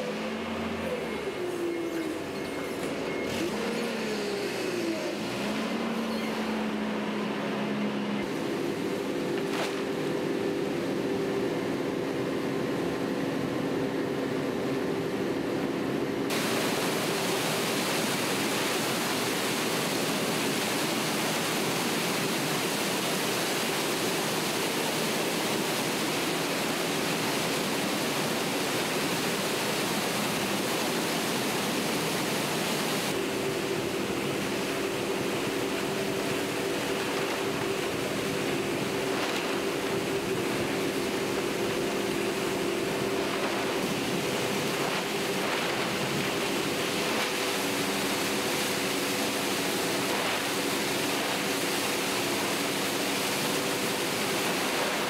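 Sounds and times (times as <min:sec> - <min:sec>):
machinery hum: 0:00.0 - 0:55.0
water and paper churning: 0:06.6 - 0:11.2, 0:16.3 - 0:55.0.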